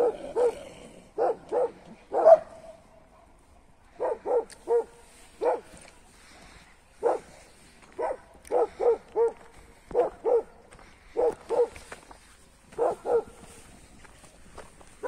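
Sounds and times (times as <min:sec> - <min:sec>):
dog barking: 0:00.0 - 0:00.6, 0:01.2 - 0:02.8, 0:03.9 - 0:05.8, 0:07.0 - 0:07.4, 0:08.0 - 0:10.6, 0:11.2 - 0:11.8, 0:12.8 - 0:13.5.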